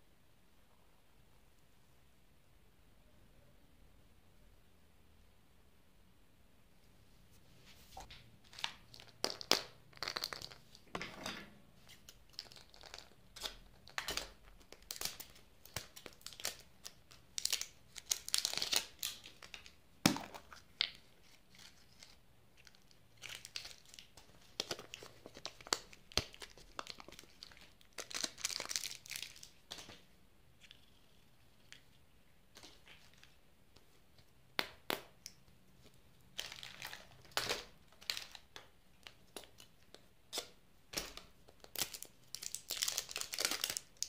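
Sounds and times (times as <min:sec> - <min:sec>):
plastic packet handled: 0:08.0 - 0:10.9, 0:11.9 - 0:30.0
wrapper crinkling and tearing: 0:08.5 - 0:10.8, 0:12.0 - 0:19.8, 0:20.4 - 0:30.0, 0:36.4 - 0:39.7, 0:40.4 - 0:44.0.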